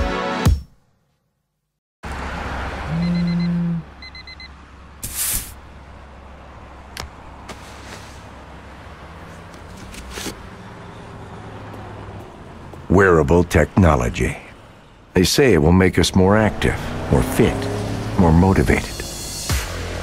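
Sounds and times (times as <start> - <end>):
music: 0.0 - 0.8, 18.9 - 20.0
alarm high beeps: 2.9 - 4.5
rustle: 7.5 - 8.3.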